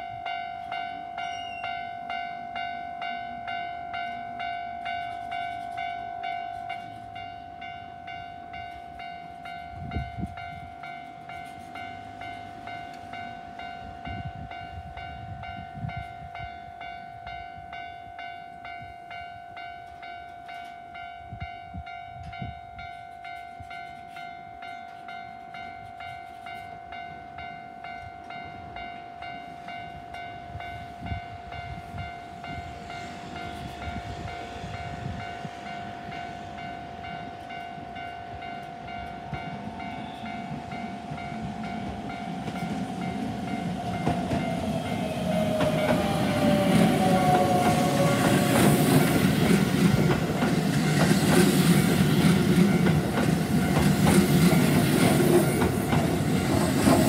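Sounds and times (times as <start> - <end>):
level-crossing alarm bell ringing: 0.0 - 57.0
electric train running: 19.9 - 57.0.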